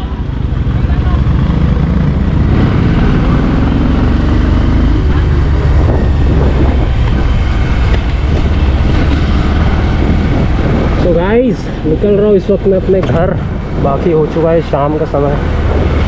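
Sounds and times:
motorcycle engine pulling away: 0:00.4 - 0:11.2.

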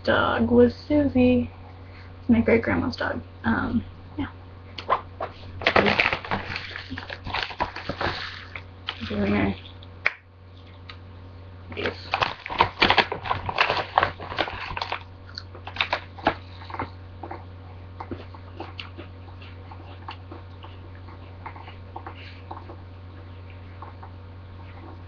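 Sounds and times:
plastic bag crinkling: 0:05.6 - 0:09.8, 0:11.7 - 0:17.4
cookie being chewed: 0:11.7 - 0:25.0.

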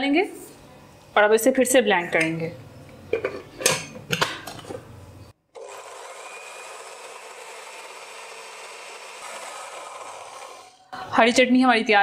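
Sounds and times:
electric blender grinding: 0:05.5 - 0:10.9.

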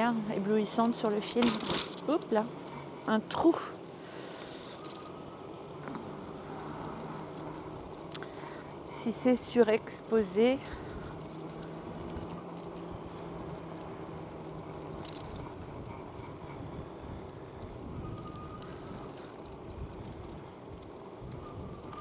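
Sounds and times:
wind rushing over microphone: 0:09.6 - 0:22.0.

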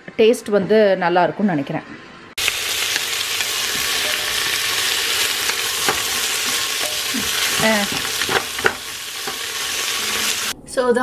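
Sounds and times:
onions sizzling in a pot: 0:02.4 - 0:10.6.

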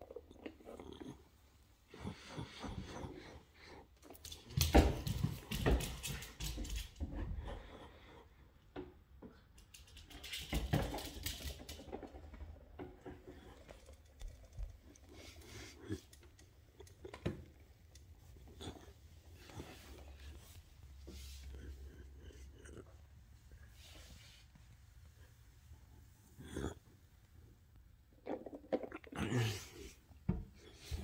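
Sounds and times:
dog claws clicking on floor: 0:04.0 - 0:07.2, 0:09.3 - 0:12.4.

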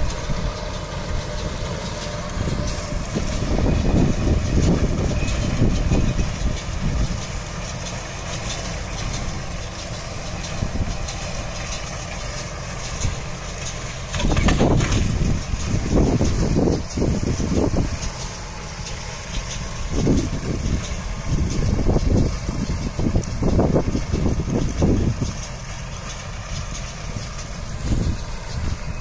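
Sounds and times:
tractor and baler drone: 0:00.0 - 0:29.0.

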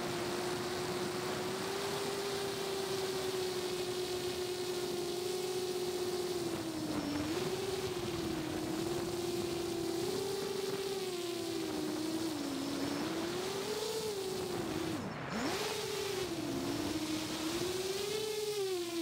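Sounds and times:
drone motors whining: 0:00.0 - 0:19.0.

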